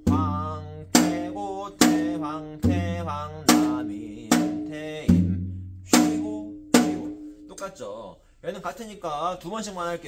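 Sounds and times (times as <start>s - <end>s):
deep drum boom: 0.0s - 7.3s
man singing syllables: 0.0s - 10.0s.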